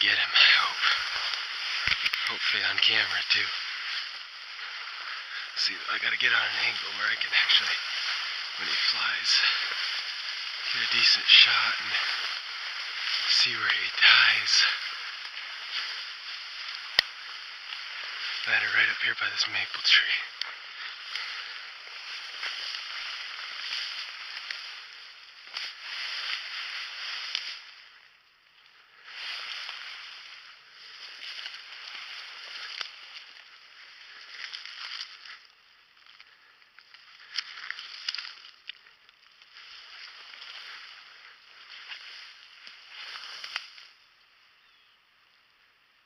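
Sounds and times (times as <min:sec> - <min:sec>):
ferns rustling against legs: 0:00.0 - 0:44.1
stems snapping: 0:00.8 - 0:02.4, 0:07.3 - 0:18.5, 0:19.5 - 0:26.4, 0:27.1 - 0:27.6, 0:31.0 - 0:43.9.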